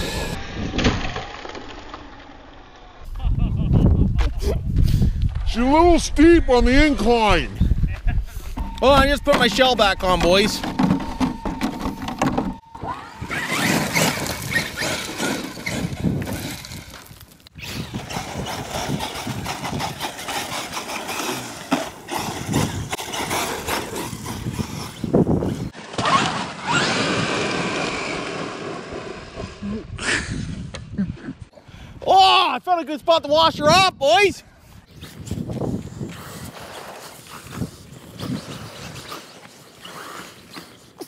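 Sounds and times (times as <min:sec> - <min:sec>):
tyres crunching on dirt: 0:13.3 - 0:28.6.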